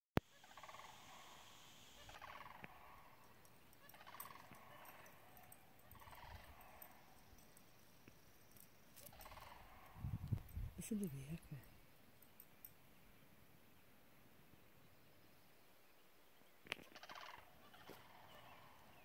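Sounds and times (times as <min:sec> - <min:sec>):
distant cranes rattling calls: 0:00.3 - 0:07.7, 0:09.0 - 0:10.2, 0:16.7 - 0:19.0.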